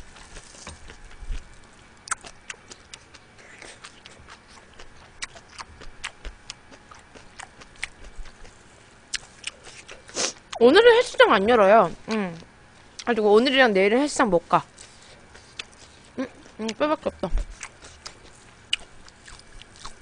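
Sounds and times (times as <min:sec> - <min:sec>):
chewing and sucking crab shell: 0:00.0 - 0:10.8, 0:14.6 - 0:16.8, 0:17.4 - 0:20.0.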